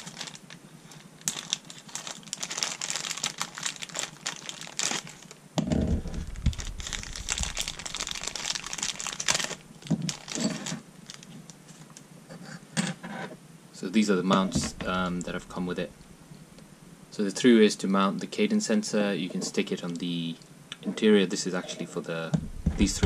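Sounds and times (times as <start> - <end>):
plastic bag crinkling: 0.0 - 11.8, 14.5 - 16.2
dull thump and rumble: 5.6 - 10.1, 14.4 - 16.2, 22.3 - 23.0.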